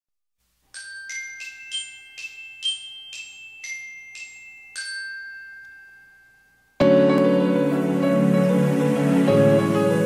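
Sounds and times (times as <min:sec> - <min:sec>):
bell-like jingle notes ringing: 0:00.7 - 0:06.9.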